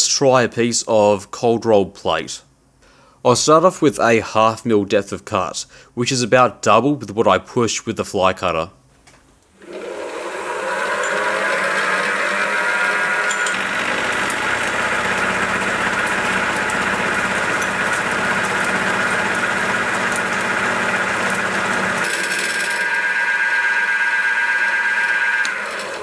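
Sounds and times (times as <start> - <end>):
cutter cutting steel: 9.6 - 26.0
milling spindle whine: 9.6 - 26.0.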